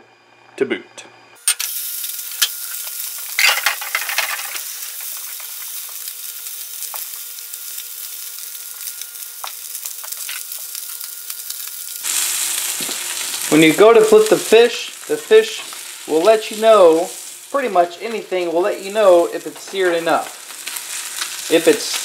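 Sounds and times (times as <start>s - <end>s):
fish sizzling in a skillet: 1.5s - 22.0s.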